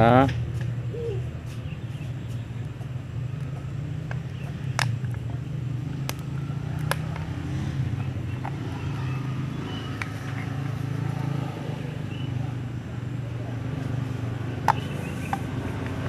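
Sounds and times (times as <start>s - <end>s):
low engine-like hum: 0.0s - 16.0s
plastic screw cap clicks: 14.6s - 16.0s.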